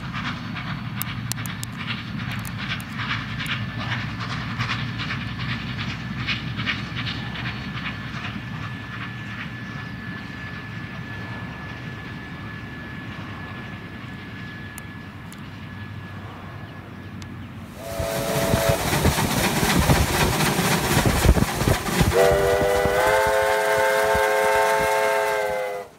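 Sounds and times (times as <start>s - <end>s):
distant train rumble: 0.0s - 25.9s
locomotive exhaust beating loudly: 17.7s - 25.9s
steam whistle: 17.8s - 19.1s, 22.0s - 25.9s.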